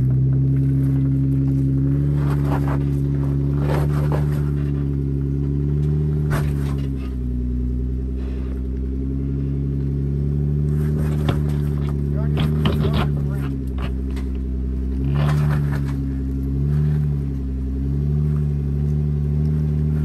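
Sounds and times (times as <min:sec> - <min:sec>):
tyres knocking and scraping on rock: 0:00.0 - 0:07.1, 0:10.7 - 0:17.2
engine running at low revs: 0:00.0 - 0:20.0.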